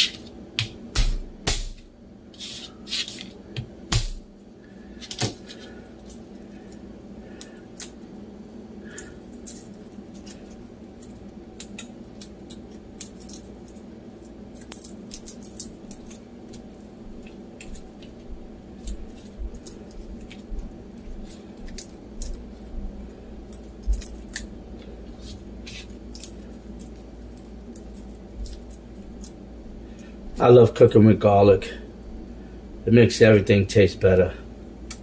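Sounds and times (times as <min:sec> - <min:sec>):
steady low hum: 0:00.0 - 0:35.0
garlic skins crackling: 0:08.8 - 0:31.0.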